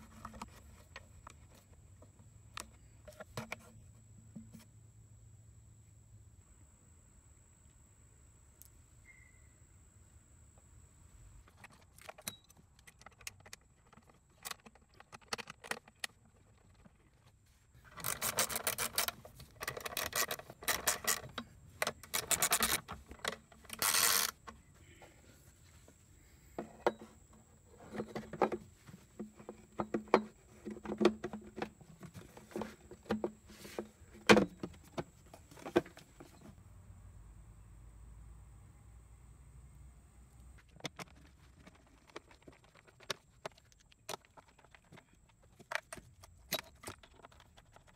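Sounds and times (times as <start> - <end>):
hand tools clicking and clattering: 17.9 - 24.6.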